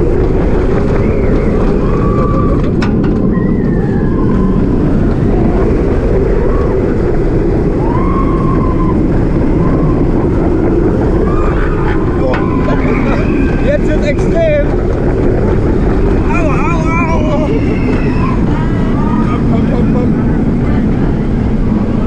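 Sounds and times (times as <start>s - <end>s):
heavy wind noise: 0.0s - 22.0s
roller coaster rumble on track: 0.0s - 22.0s
rising and falling high tones: 15.2s - 21.0s.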